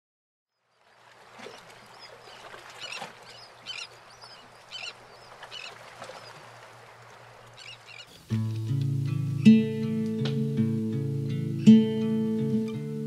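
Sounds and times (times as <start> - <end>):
birds calling: 0.6 - 8.3, 11.4 - 12.1
surf washing on rocks: 0.9 - 8.9
acoustic guitar music: 8.1 - 13.0.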